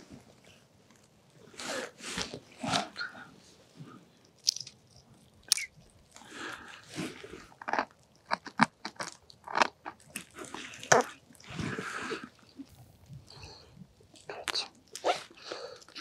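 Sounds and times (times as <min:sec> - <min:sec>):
fishing gear clicking: 0:04.3 - 0:05.7.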